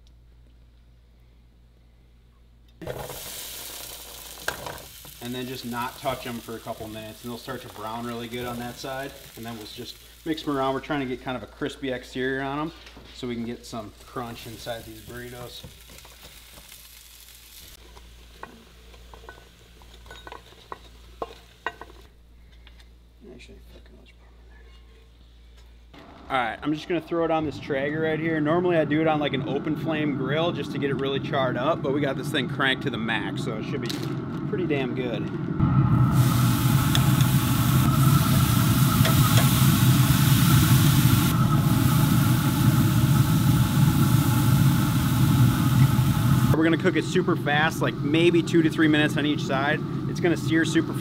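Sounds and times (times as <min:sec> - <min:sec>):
potatoes sizzling in oil: 0:02.8 - 0:22.1, 0:36.0 - 0:51.0
spoon knocking and scraping pan: 0:17.9 - 0:22.0.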